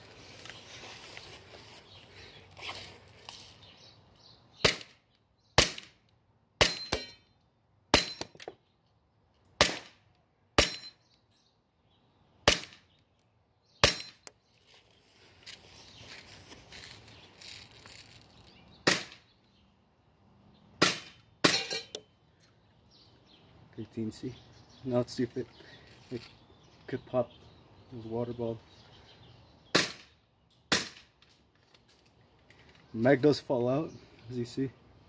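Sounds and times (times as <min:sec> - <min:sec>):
airsoft pistol shots: 0:04.6 - 0:05.0, 0:05.6 - 0:06.0, 0:09.6 - 0:10.0, 0:12.4 - 0:12.8, 0:13.8 - 0:14.2, 0:18.8 - 0:19.2, 0:20.8 - 0:21.6, 0:29.7 - 0:30.1, 0:30.7 - 0:31.1
high ping of metal target: 0:06.6 - 0:07.3, 0:10.6 - 0:11.0, 0:21.4 - 0:22.0.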